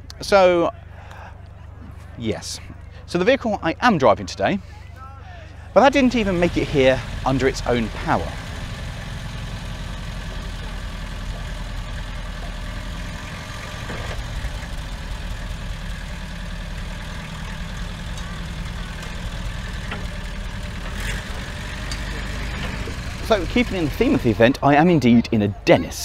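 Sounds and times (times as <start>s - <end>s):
lorry engine idling: 0.0s - 26.0s
wheels clattering off ramp: 5.8s - 24.7s.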